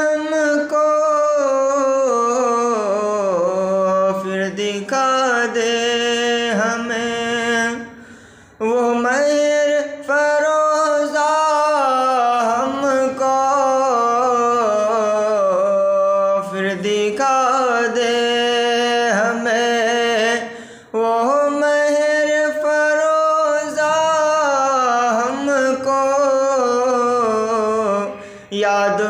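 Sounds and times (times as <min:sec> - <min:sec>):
man singing unaccompanied: 0:00.0 - 0:29.0
breath: 0:07.9 - 0:08.6, 0:20.4 - 0:21.0, 0:28.1 - 0:28.6.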